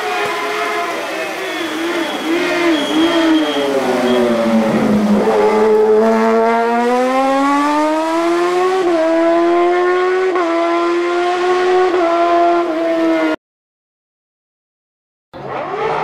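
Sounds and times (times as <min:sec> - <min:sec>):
race car engine accelerating: 0:01.3 - 0:13.4, 0:15.4 - 0:16.0.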